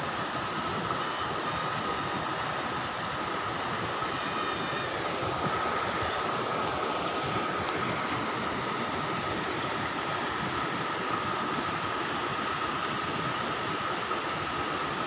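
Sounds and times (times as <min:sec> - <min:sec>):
river water rushing over rocks: 0:00.0 - 0:15.0
faint steady high tone: 0:00.9 - 0:02.8, 0:03.5 - 0:06.2.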